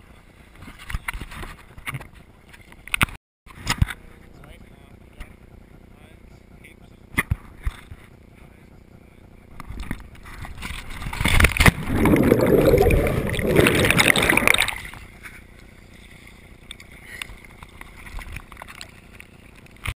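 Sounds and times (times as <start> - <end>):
river water splashing: 11.5 - 15.1.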